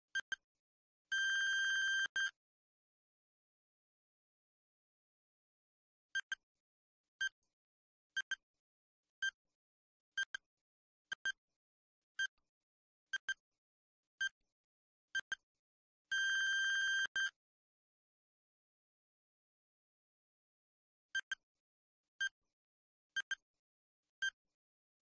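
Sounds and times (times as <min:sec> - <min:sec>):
long steady timer beep: 0:01.1 - 0:02.4, 0:16.1 - 0:17.4.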